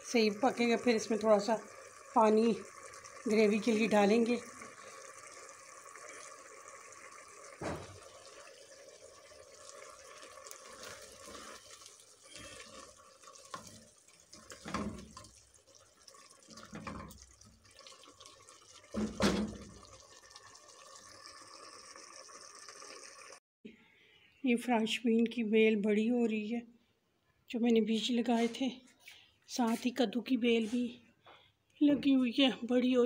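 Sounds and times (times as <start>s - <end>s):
meat sizzling in a pot: 0.0s - 23.4s
spatula scraping a pan: 10.6s - 15.4s.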